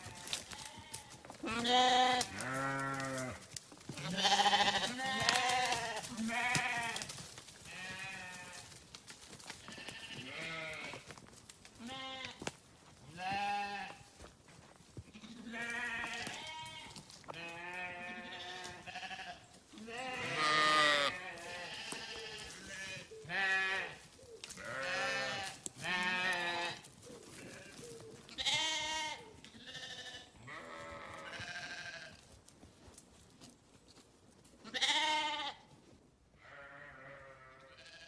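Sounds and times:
sheep bleating: 0.0 - 7.1, 7.7 - 8.7, 9.6 - 11.0, 11.8 - 12.4, 13.1 - 14.1, 15.1 - 24.0, 24.6 - 32.2, 34.6 - 35.7, 36.4 - 38.0.

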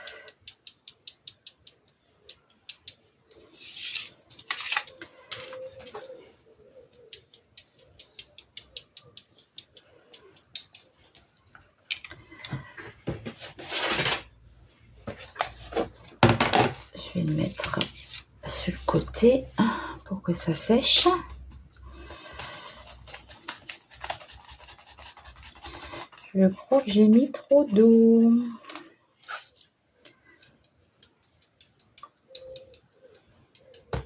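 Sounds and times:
brush tapping paint spatter ticks: 0.0 - 3.4, 6.9 - 11.7, 30.2 - 34.0
paper rustling and knocking: 15.0 - 16.8.

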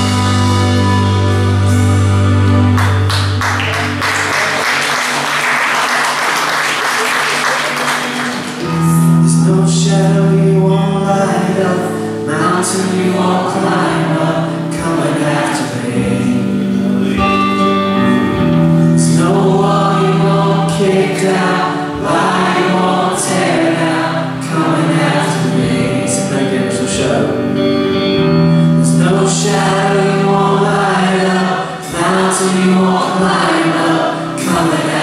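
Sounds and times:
worship band playing: 0.0 - 35.0
audience applause: 2.7 - 8.8
singer and congregation singing: 4.2 - 35.0.

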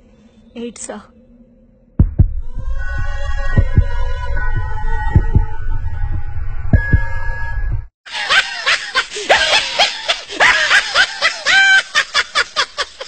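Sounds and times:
dramatic music with throbbing bass: 1.9 - 7.9
person cackling with laughter: 8.1 - 13.0.

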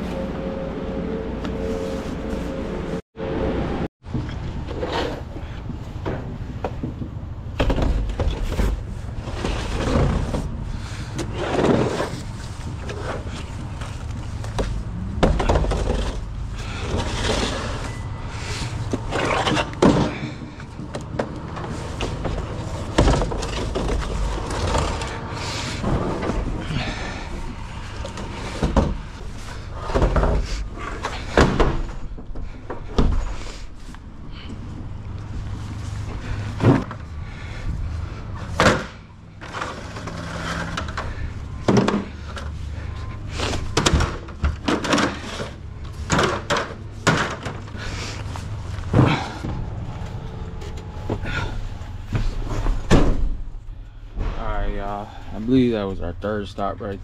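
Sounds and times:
plastic crates clattering: 43.3 - 49.6
steady low rumble: 46.9 - 57.0.

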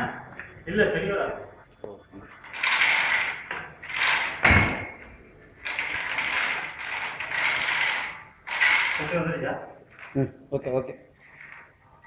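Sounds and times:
chain hoist ratchet clicking: 2.4 - 4.4, 5.6 - 9.3
heavy clunk: 4.2 - 5.1
chain rattling: 5.6 - 9.2.

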